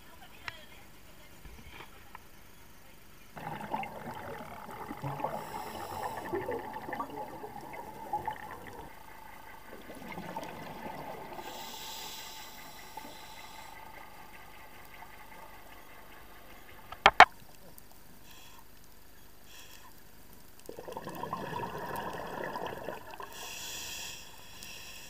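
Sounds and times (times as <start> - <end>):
underwater bubble streams: 3.4 - 17.8, 20.6 - 23.9
regulator inhalation hiss: 5.2 - 7.0, 11.3 - 15.8, 18.2 - 18.7, 19.4 - 20.0, 23.2 - 25.0.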